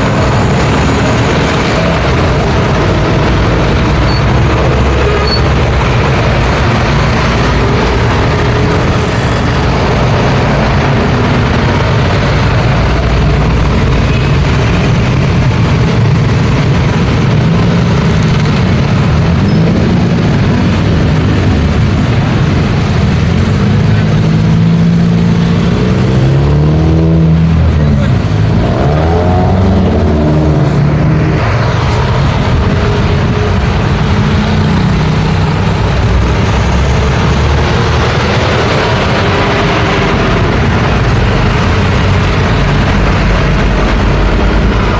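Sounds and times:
engine and tyre noise: 0.0 - 44.9
motor scooters: 0.0 - 44.9
vehicle engines accelerating: 0.0 - 44.9.

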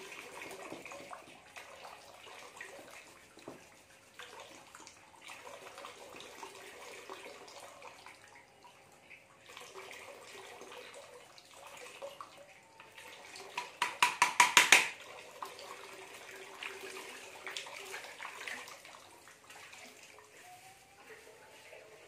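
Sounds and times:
tap water splashing into basin: 0.0 - 8.5, 9.4 - 20.3
wooden pestle knocking metal bowl: 13.6 - 15.0.

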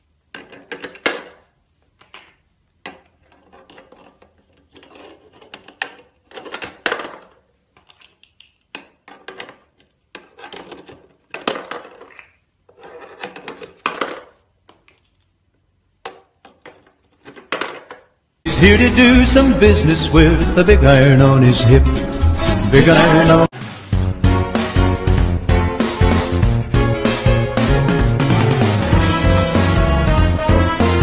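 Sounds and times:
plastic blocks clacking: 0.3 - 15.3, 16.0 - 18.2.

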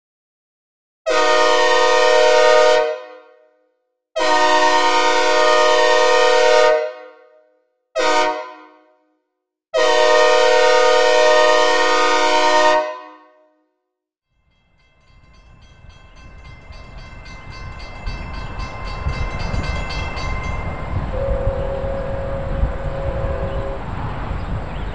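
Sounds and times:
locomotive air horn blasts: 1.1 - 3.4, 4.2 - 7.4, 8.0 - 9.0, 9.8 - 13.4, 21.0 - 24.1
approaching train rumble: 14.4 - 24.9.

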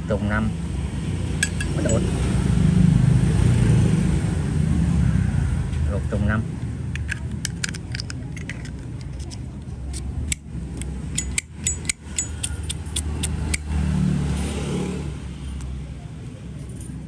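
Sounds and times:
ringing metal clinks: 1.4 - 2.1, 11.2 - 13.3.

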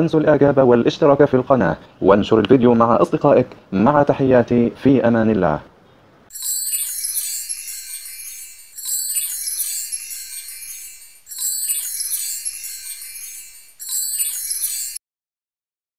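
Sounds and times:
shimmering wind chime: 6.3 - 15.0.

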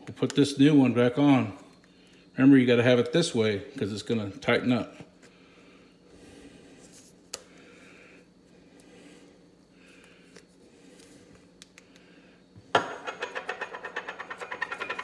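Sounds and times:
metal part rattling on countertop: 12.8 - 15.0
clicking and rubbing of parts: 13.1 - 15.0.

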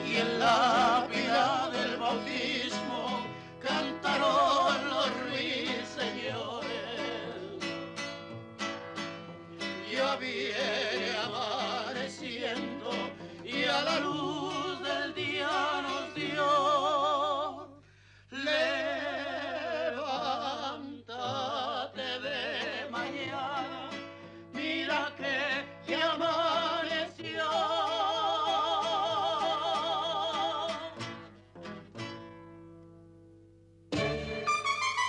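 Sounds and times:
person singing with vibrato: 0.0 - 7.8, 9.7 - 31.1
quiet instrumental backing: 33.9 - 35.0.

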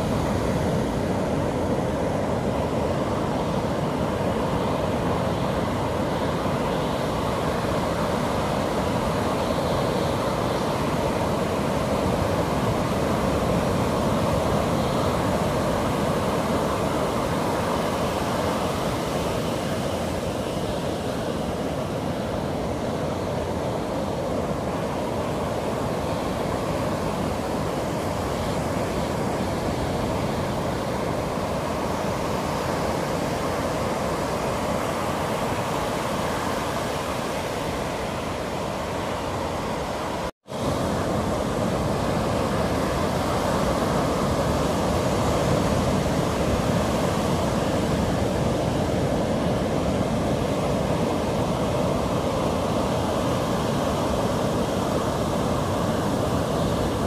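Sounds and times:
waves washing up a beach: 0.0 - 57.0.

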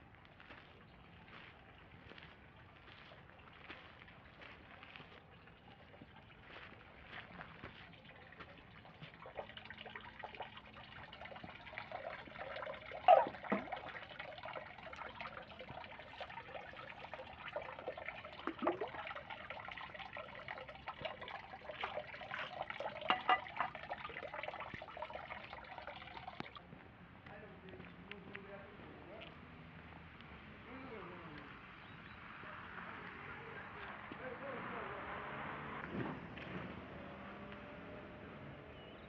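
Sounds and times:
water trickling into basin: 0.0 - 26.6
drops plopping: 11.2 - 16.4, 17.6 - 26.6.

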